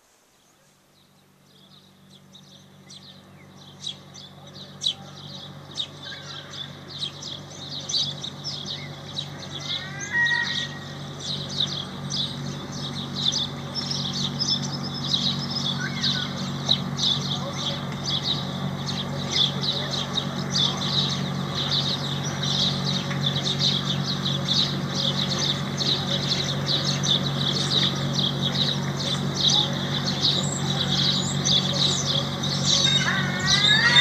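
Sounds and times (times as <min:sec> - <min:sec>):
low steady hum: 0:00.0 - 0:34.0
small birds chirping: 0:00.0 - 0:34.0.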